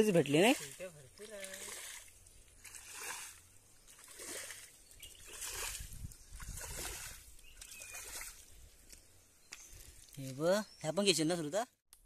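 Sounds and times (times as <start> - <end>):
muddy water splashing: 0.0 - 10.6
bowl scooping water: 0.2 - 8.6.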